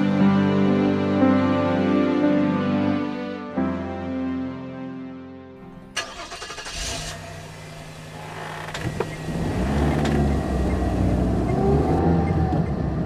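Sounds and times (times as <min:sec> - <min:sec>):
vehicle engine running: 0:06.0 - 0:13.0.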